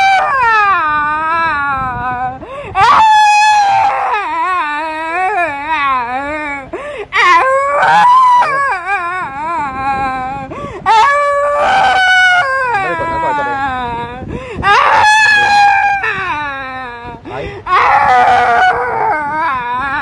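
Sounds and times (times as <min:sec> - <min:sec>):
woman wailing and sobbing: 0:00.0 - 0:20.0.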